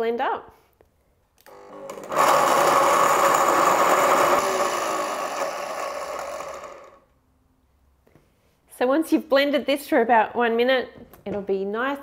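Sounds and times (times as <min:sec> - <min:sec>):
blender running: 0:01.5 - 0:07.1.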